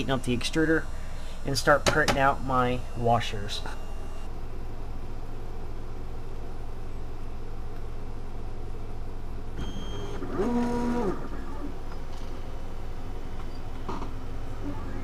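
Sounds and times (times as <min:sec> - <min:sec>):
stepper motors whining: 0:00.0 - 0:04.3, 0:09.6 - 0:11.8
printer fans humming: 0:00.0 - 0:15.0.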